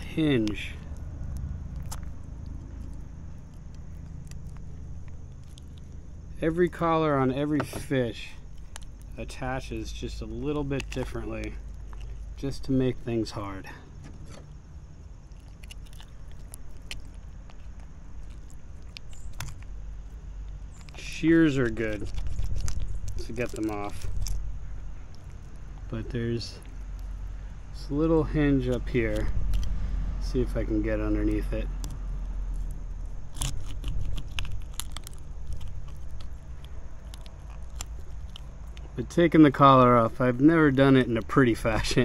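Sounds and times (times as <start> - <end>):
knife crunching through fish bone: 0.0 - 6.0, 15.3 - 19.8, 20.5 - 24.4, 31.8 - 38.9
low steady rumble: 0.0 - 42.0
knife cracking through fish bone: 32.6 - 38.9.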